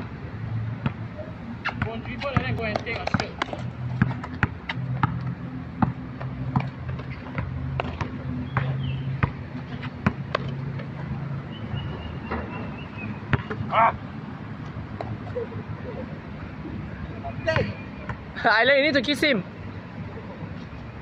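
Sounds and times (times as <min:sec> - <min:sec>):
basketball bouncing on concrete: 0:01.6 - 0:13.6.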